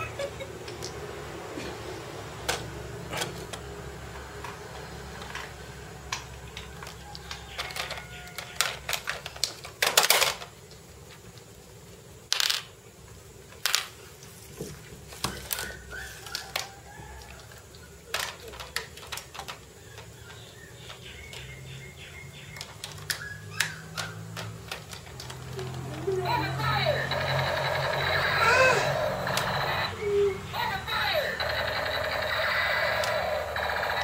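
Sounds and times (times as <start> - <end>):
plastic toys clattering on tile: 2.4 - 11.5, 12.3 - 12.8, 13.5 - 21.5, 22.5 - 29.7.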